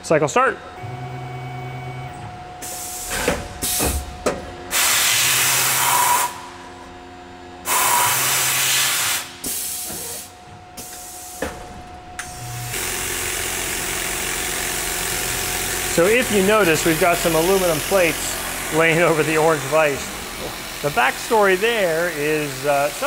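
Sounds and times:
machine running: 0.4s - 23.0s
compressed air hissing: 2.6s - 4.0s, 4.7s - 6.5s, 7.6s - 11.5s, 15.5s - 23.0s.

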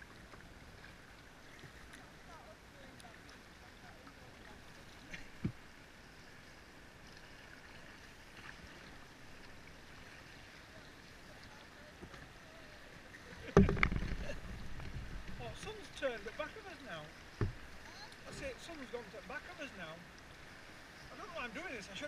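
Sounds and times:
river water rushing around hull: 0.0s - 22.0s
low thump and rumble: 13.5s - 15.4s.

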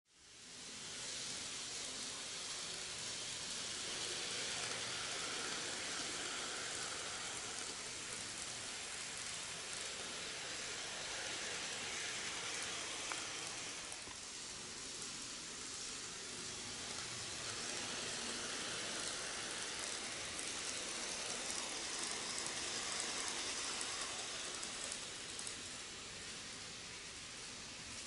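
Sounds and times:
model train wheels and motors: 0.1s - 28.0s.

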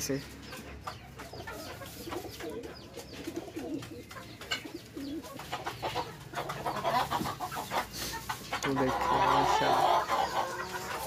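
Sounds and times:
pigeons cooing: 1.2s - 11.0s.

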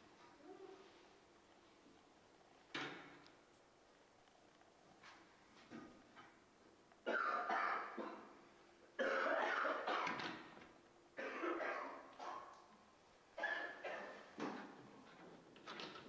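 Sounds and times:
person coughing hard: 7.1s - 8.3s, 9.0s - 10.2s, 11.2s - 12.1s.

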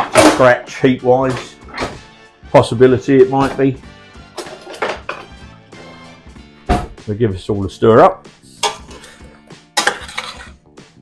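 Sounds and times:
metal kitchenware clinking: 0.0s - 0.6s, 4.3s - 5.4s, 8.6s - 10.6s
background music: 0.0s - 11.0s.

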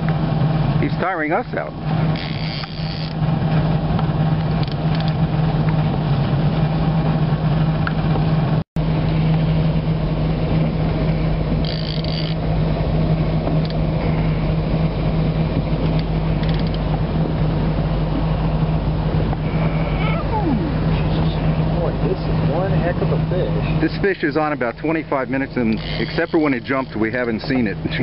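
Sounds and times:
boat engine idling: 0.0s - 28.0s
fishing reel ratcheting: 2.1s - 3.2s, 11.6s - 12.4s, 16.4s - 16.8s, 25.6s - 27.0s.

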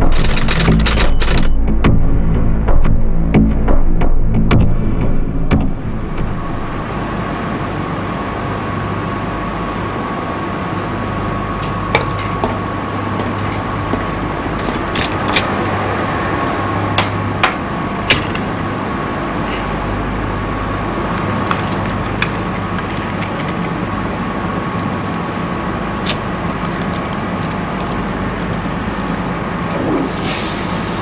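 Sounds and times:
low rushing drone: 1.6s - 11.6s, 27.3s - 31.0s.

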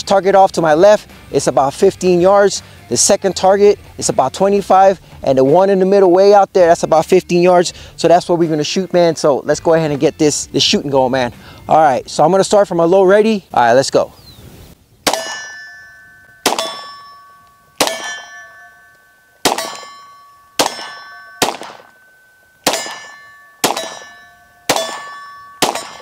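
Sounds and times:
pistol shots: 15.0s - 15.5s, 16.4s - 17.0s, 17.8s - 18.4s, 19.4s - 20.0s, 20.6s - 22.0s, 22.6s - 26.0s
steel target ringing: 15.0s - 26.0s.

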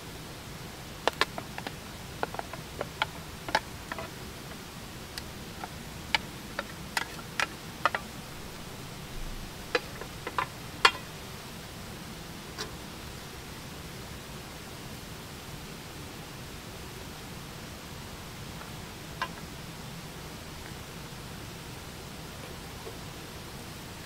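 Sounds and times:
wood fire crackling: 0.8s - 13.8s.

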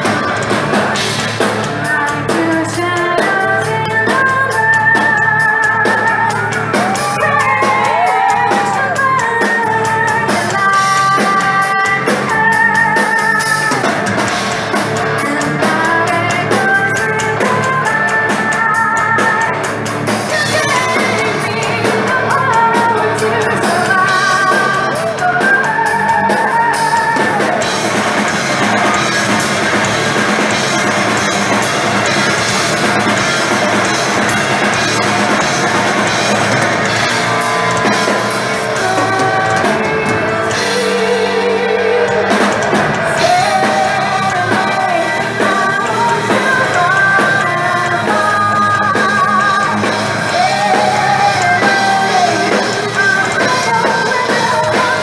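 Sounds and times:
distorted electric guitars: 0.0s - 55.0s
drum kit: 0.0s - 55.0s
woman singing: 0.9s - 14.1s, 15.0s - 27.8s, 37.8s - 55.0s.

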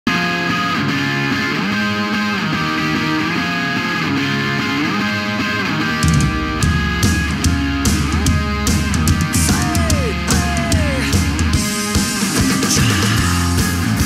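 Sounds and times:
rock band with drums and bass: 0.1s - 14.0s.

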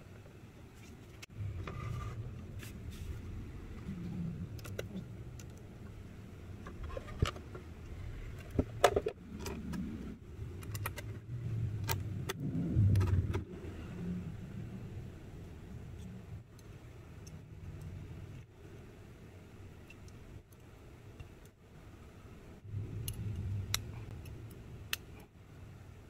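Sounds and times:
low handling rumble: 1.2s - 18.8s, 22.5s - 26.0s
parts clicking and knocking: 6.6s - 13.5s.

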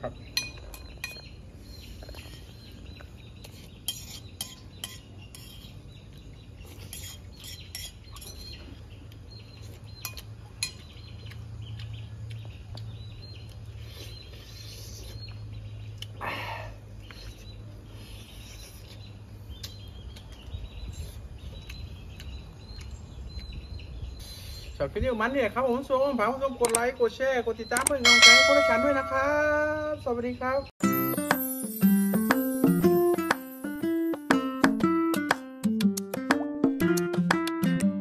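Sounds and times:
spoon clinking on ceramic plate: 28.1s - 29.4s.

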